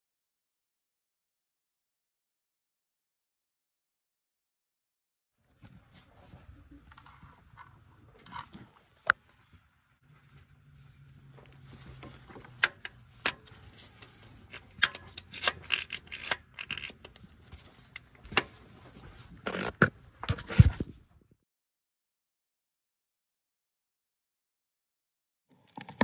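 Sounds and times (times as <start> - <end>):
metal tools clinking and scraping: 11.3 - 18.8.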